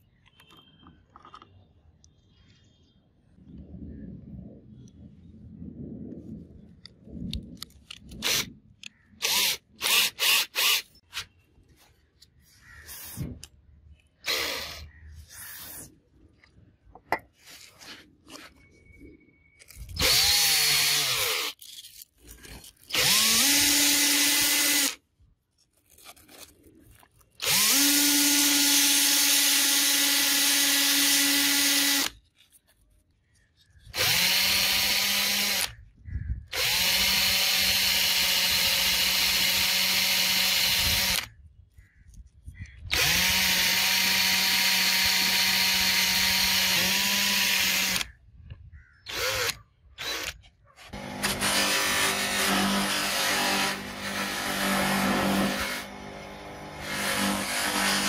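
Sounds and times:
cordless drill motor whining: 9.2 - 11.2, 14.2 - 14.9, 19.6 - 21.6, 22.4 - 25.0, 27.4 - 32.2, 33.8 - 35.8, 36.5 - 41.3, 42.8 - 48.1, 49.0 - 58.0.

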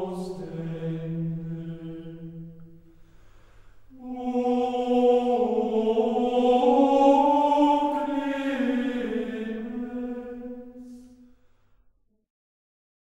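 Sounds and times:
chant with long held notes: 0.0 - 2.9, 3.9 - 11.3.

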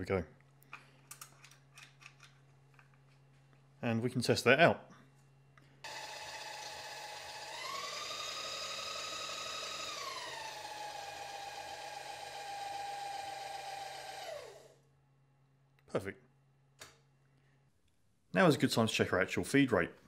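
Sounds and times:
power feed motor whine: 5.8 - 14.8.

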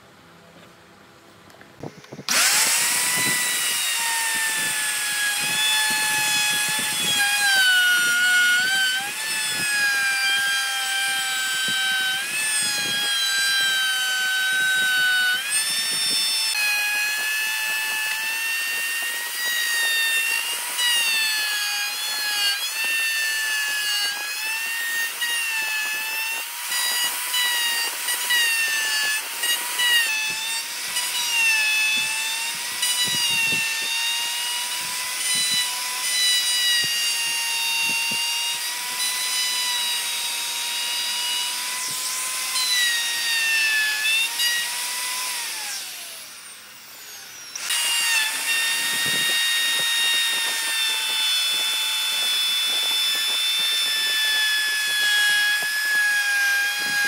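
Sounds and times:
electric router whining: 1.5 - 57.0.

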